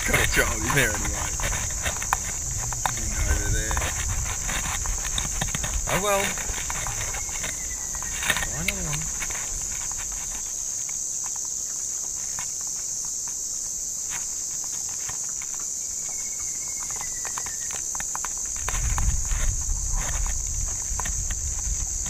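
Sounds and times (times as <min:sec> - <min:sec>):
insects droning: 0:00.0 - 0:22.0
low rumble: 0:01.1 - 0:05.9.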